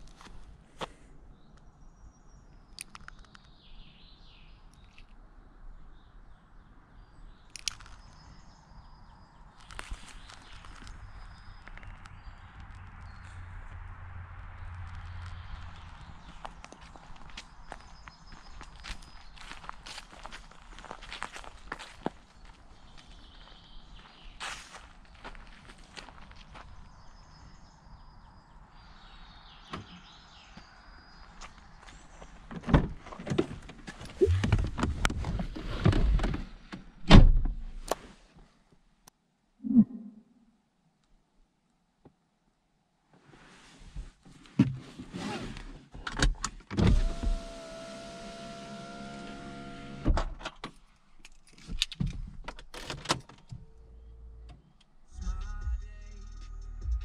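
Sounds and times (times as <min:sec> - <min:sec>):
car door opening: 0:32.6 - 0:36.4.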